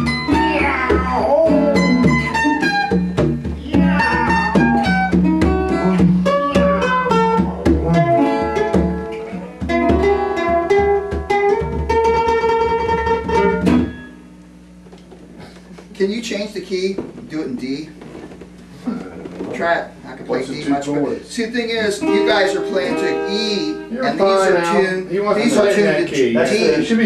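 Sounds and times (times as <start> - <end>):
conga drums: 0.0 - 14.1
acoustic guitars and mandolin: 0.0 - 14.3, 18.7 - 27.0.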